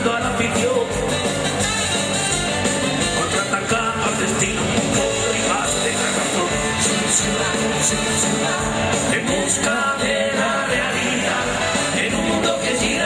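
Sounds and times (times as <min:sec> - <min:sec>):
live band playing: 0:00.0 - 0:13.0.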